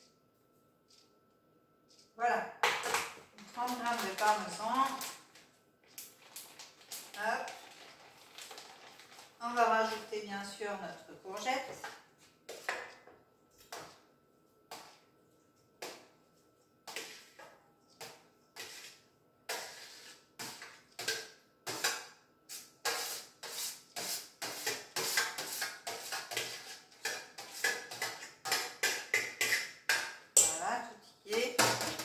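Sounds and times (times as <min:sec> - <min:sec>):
spoon scraping and tapping dish: 0:16.8 - 0:22.1, 0:22.8 - 0:30.6.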